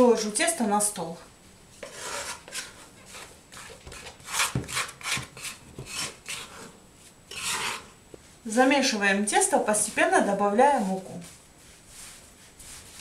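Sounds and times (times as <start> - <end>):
dough scraped from glass bowl: 7.3 - 7.9.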